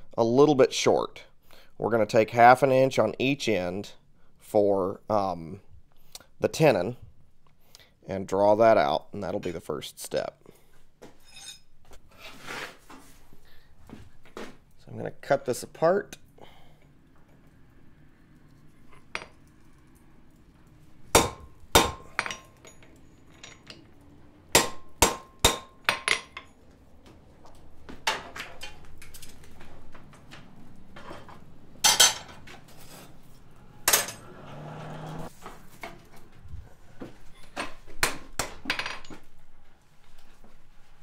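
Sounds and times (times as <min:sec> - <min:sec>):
hammer striking hot metal: 0:21.1 - 0:22.8, 0:24.5 - 0:26.4.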